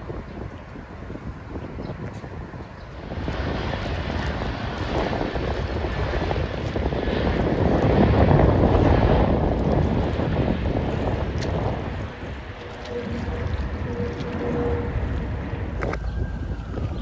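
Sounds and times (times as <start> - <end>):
jet airliner flying overhead: 0.0 - 17.0.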